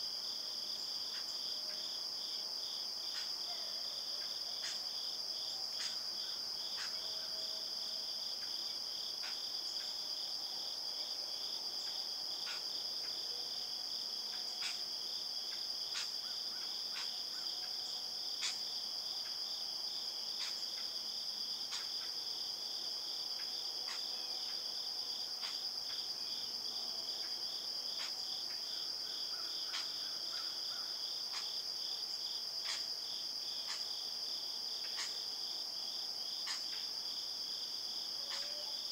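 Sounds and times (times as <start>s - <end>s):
faint insect ticks: 8.4s - 10.0s, 11.8s - 13.2s, 14.3s - 21.0s, 21.6s - 22.1s, 23.4s - 26.1s, 27.2s - 34.1s, 34.7s - 37.0s
shrill insect tones: 37.9s - 38.9s.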